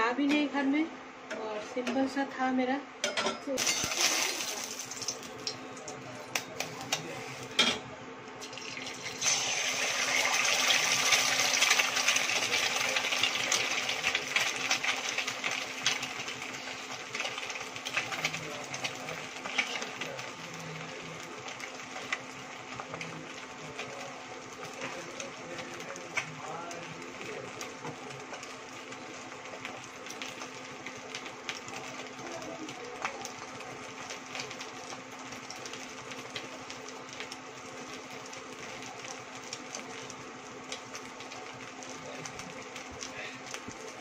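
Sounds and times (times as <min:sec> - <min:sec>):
egg sizzling in hot oil: 0:03.5 - 0:07.7, 0:08.3 - 0:44.0.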